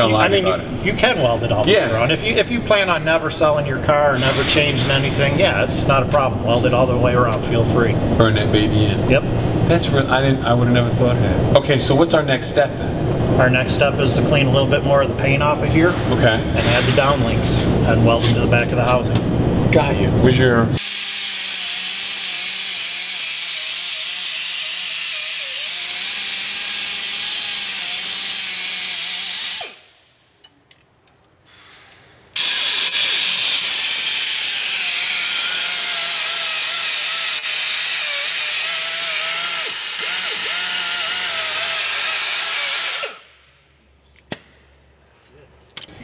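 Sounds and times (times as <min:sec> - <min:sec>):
power grinder running: 0:32.4 - 0:43.2.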